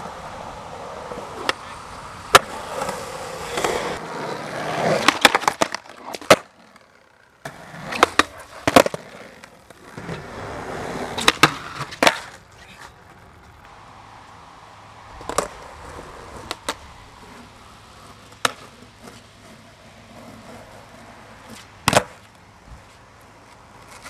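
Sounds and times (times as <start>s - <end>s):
skateboard wheels rolling: 0.0s - 24.0s
skateboard wooden clacks: 2.3s - 4.0s, 4.6s - 13.7s, 15.2s - 24.0s.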